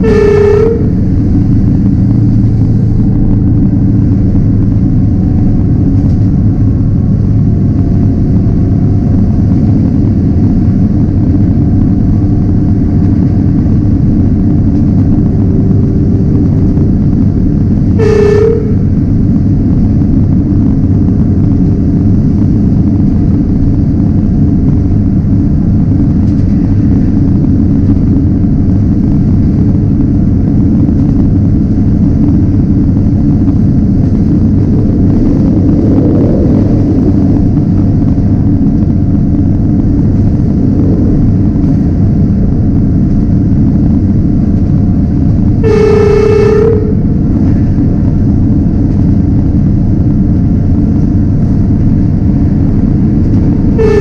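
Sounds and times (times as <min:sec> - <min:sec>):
train horn toot: 0:00.0 - 0:01.2, 0:17.9 - 0:19.0, 0:45.6 - 0:47.2, 0:53.7 - 0:54.0
diesel train rumbling on rails: 0:00.0 - 0:54.0.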